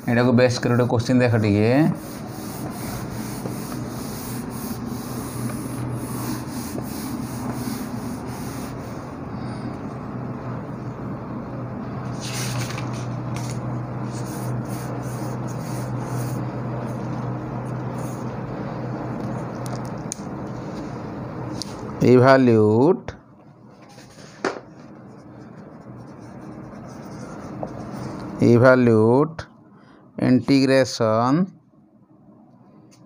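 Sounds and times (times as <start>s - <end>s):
cloth rubbing on whiteboard: 0.0s - 9.1s, 12.1s - 18.4s, 25.0s - 28.4s
steady low hum: 0.0s - 33.0s.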